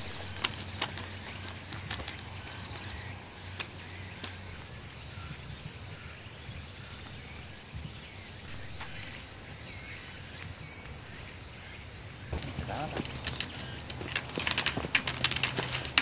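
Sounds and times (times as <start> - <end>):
high insect buzz: 0.0 - 13.9.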